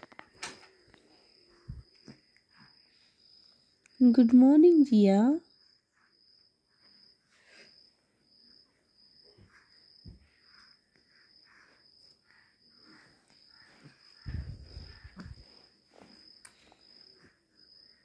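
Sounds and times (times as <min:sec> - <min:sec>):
cricket trilling: 0:05.4 - 0:18.0
soft rustling: 0:12.9 - 0:17.4
low muffled thumps: 0:14.3 - 0:15.4.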